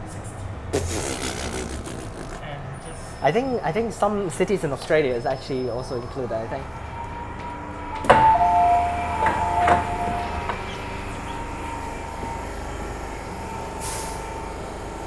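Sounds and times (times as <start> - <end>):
train car rumble: 0.0 - 15.0
sliding doors clunking shut: 7.2 - 12.0
two-tone door chime: 7.9 - 13.5
electrical whine: 8.2 - 15.0.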